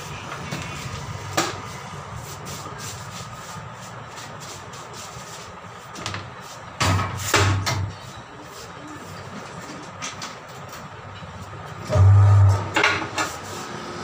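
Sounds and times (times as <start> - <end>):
steady low hum: 10.5 - 12.8.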